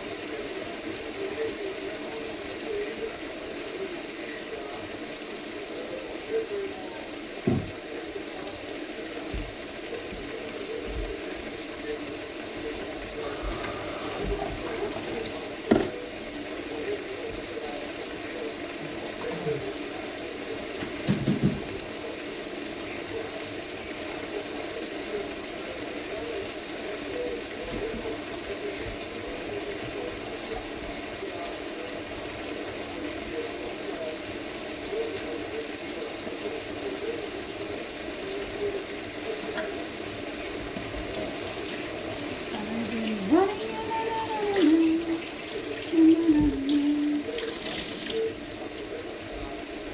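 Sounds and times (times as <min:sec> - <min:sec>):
food sizzling in a frying pan: 0:00.0 - 0:49.9
tap water running into sink: 0:07.4 - 0:07.8, 0:08.5 - 0:11.2, 0:13.2 - 0:16.1, 0:20.7 - 0:21.8, 0:40.6 - 0:48.9.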